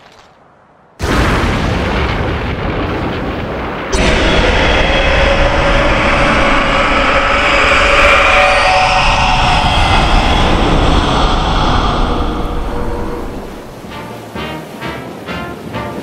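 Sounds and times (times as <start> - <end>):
loud explosive rumble: 1.0 - 14.0
monster roar: 3.9 - 13.9.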